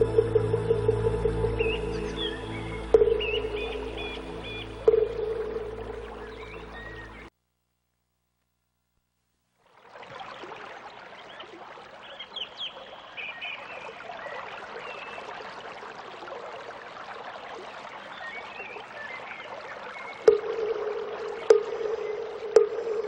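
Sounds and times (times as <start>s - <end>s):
ringing strike tone: 0.0s - 6.2s
water trickling: 0.0s - 7.3s, 9.6s - 23.0s
faint bird chirps: 1.5s - 7.3s.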